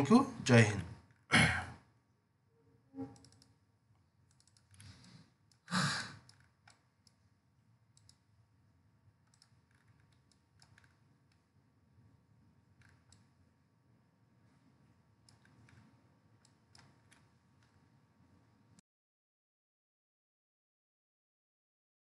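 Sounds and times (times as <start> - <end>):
faint computer mouse clicks: 3.1 - 3.6, 4.3 - 5.6, 8.0 - 8.2, 9.3 - 11.5, 12.8 - 13.3, 15.2 - 17.8
person breathing: 4.7 - 6.3.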